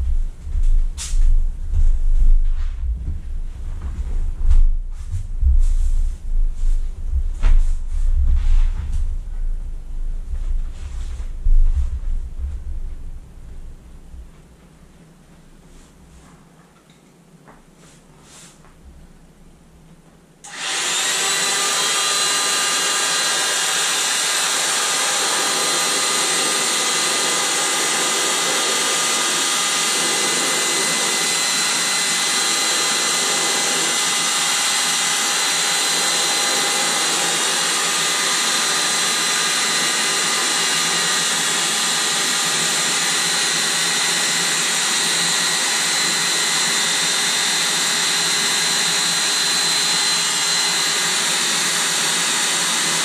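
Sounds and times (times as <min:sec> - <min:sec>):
electric air pump whining: 0:20.4 - 0:53.0.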